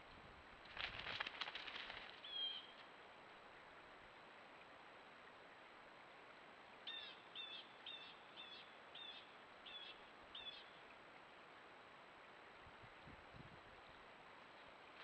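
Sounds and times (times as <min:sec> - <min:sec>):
bird calling with high piping notes: 0:02.2 - 0:02.8, 0:06.8 - 0:10.8.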